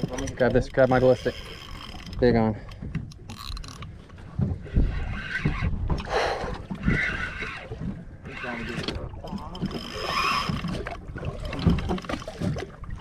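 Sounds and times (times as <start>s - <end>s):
water slapping boat hull: 0.0s - 13.0s
wind buffeting microphone: 4.2s - 13.0s.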